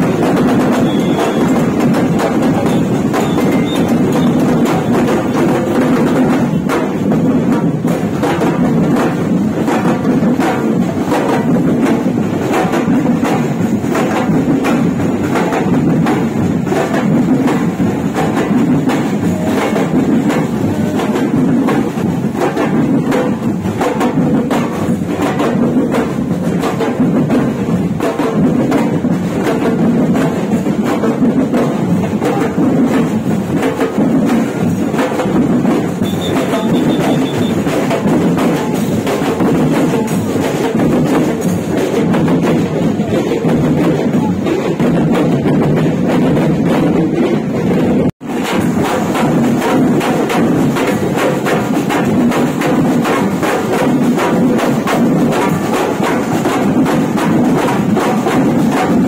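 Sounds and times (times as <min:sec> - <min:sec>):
marching drumline: 0:00.0 - 0:59.0.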